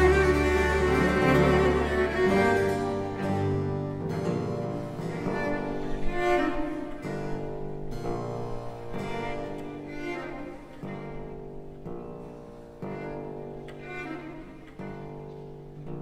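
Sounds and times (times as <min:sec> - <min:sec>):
baroque orchestra accompaniment: 0:00.0 - 0:06.4
bowed cellos playing slowly: 0:00.0 - 0:16.0.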